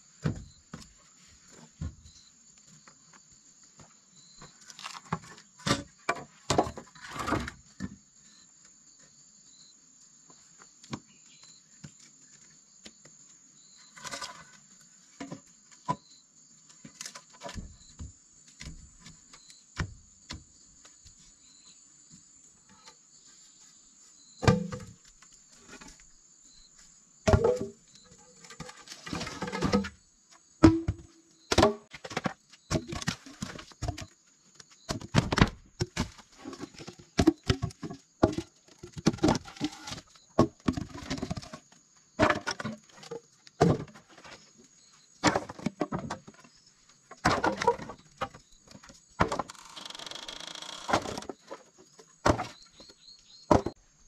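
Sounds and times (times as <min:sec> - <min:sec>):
bamboo poles knocking and scraping: 0:03.8 - 0:08.0, 0:13.9 - 0:16.1, 0:16.7 - 0:21.4, 0:24.4 - 0:26.1, 0:27.2 - 0:53.8
bamboo poles thudding on earth: 0:24.4 - 0:26.0, 0:27.2 - 0:30.0, 0:30.6 - 0:34.2, 0:34.8 - 0:44.5, 0:45.2 - 0:49.6, 0:50.9 - 0:53.8
high insect drone: 0:49.5 - 0:51.2.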